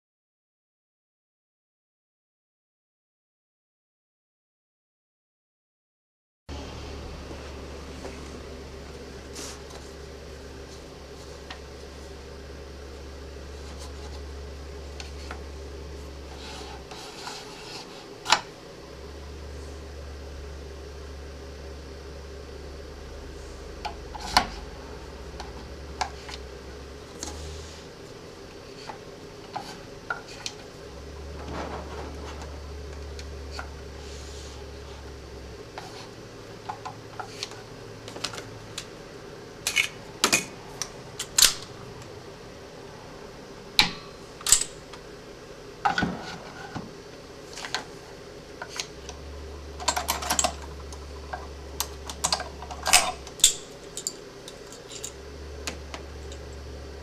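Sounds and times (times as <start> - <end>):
sharp clicks of parts: 43.8 - 44.8, 51.8 - 56.4.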